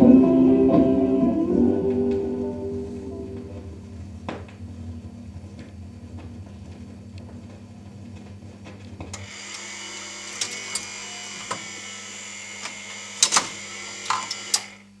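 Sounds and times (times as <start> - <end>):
low hum: 0.0 - 6.5
motor whine: 9.2 - 15.0.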